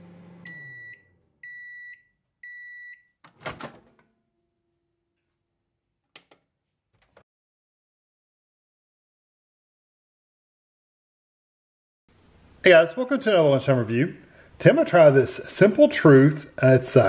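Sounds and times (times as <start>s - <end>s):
microwave oven hum: 0.0s - 1.7s
microwave long beeps: 0.1s - 3.2s.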